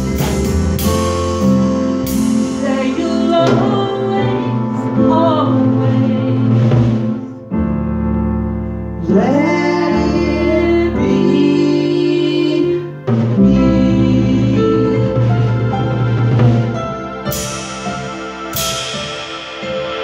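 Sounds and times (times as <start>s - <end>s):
drum kit: 0.0s - 20.0s
electronic keyboards: 0.0s - 20.0s
woman singing: 2.4s - 7.2s, 9.0s - 15.6s.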